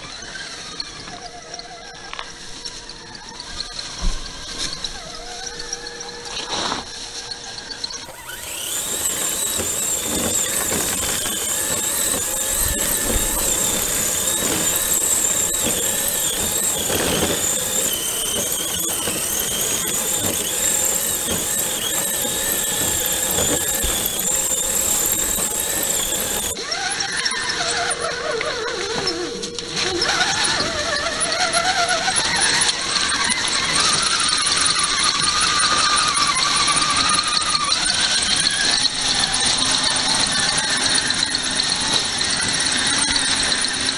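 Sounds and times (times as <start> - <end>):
electric motor whining: 0.0 - 43.9
tracks churning through snow: 8.1 - 26.6.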